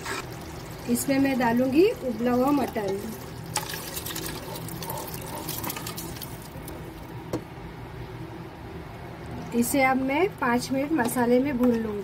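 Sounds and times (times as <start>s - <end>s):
wet pouring and splashing: 0.0s - 6.9s.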